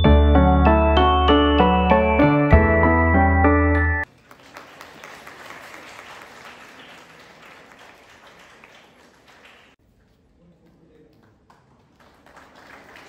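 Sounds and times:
piano background music: 0.0s - 4.0s
audience applauding: 4.0s - 13.0s.

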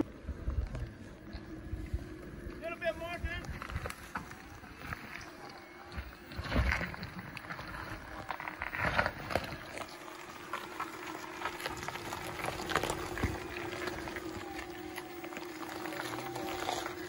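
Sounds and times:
engine hum: 0.0s - 17.0s
tyres crunching on gritty rock: 2.5s - 17.0s.

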